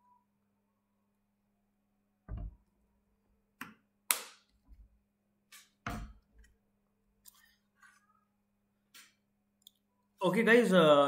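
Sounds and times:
desk handling knocks and clicks: 2.3s - 2.6s.

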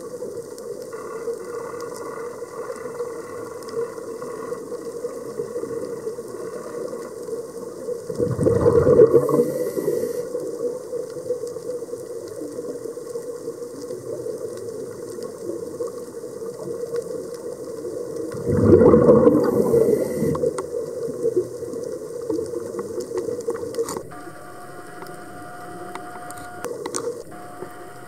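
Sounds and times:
exhaled bubbles bursting: 8.1s - 9.6s, 18.3s - 20.5s
underwater regulator breathing: 8.2s - 10.3s, 18.4s - 20.6s
steady low hum: 23.9s - 28.0s.

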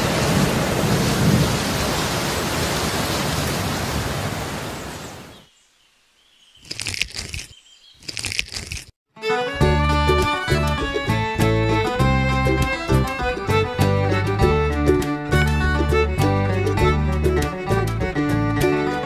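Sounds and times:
heavy rain pouring: 0.0s - 5.3s
short crackly bursts: 6.6s - 9.0s.

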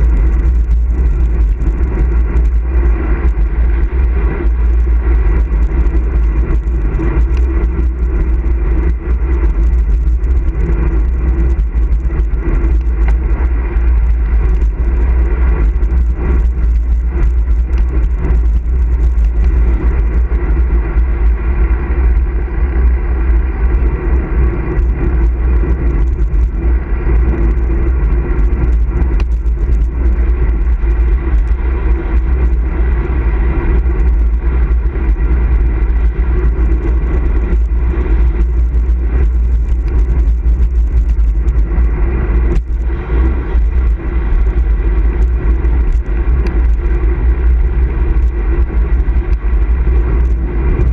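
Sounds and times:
bike tyres humming on road: 0.0s - 50.9s
wind rumble on microphone: 0.0s - 50.9s.

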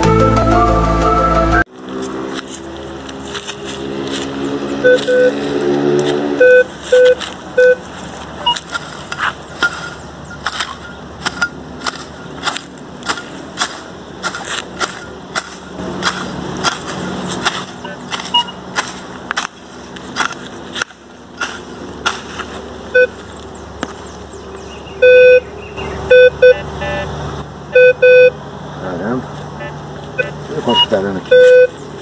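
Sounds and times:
digging tool chopping soil: 1.9s - 23.2s
metal detector short beeps: 4.8s - 5.4s, 6.4s - 7.8s, 8.4s - 8.8s, 9.6s - 12.3s, 17.8s - 18.6s, 22.9s - 23.2s, 25.0s - 25.4s, 26.1s - 27.1s, 27.8s - 28.4s, 29.6s - 31.8s.

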